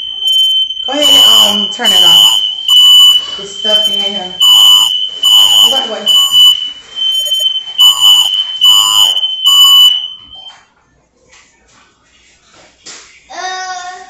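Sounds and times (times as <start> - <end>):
smoke alarm beeping: 0.0 - 10.7.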